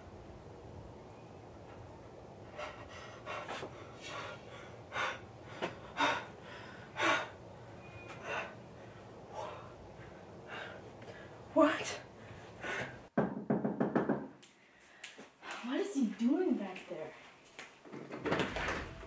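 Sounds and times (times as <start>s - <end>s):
boy gasping for breath: 2.6s - 7.4s.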